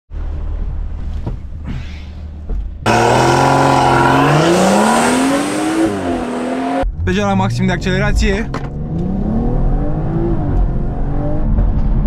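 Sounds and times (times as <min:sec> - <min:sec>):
car engine accelerating: 0:02.8 - 0:12.0.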